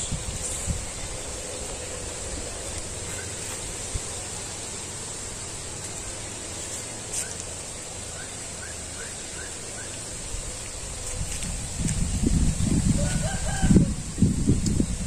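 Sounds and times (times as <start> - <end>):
wind in trees: 0.0 - 15.0
bird chirping: 8.1 - 10.2.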